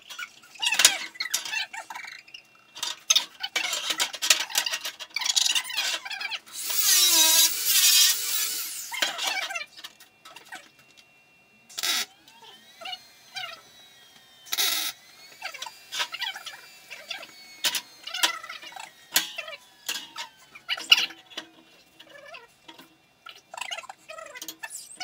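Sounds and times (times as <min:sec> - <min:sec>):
tools clinking on steel frame: 0:19.1 - 0:21.6.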